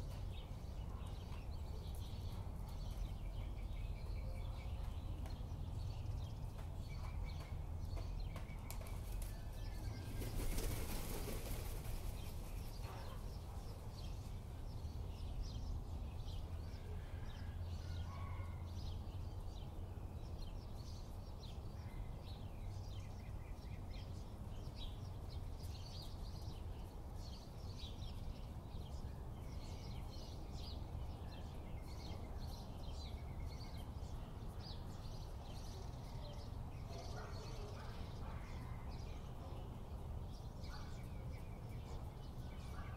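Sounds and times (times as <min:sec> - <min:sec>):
bird wings flapping: 0:10.0 - 0:12.6.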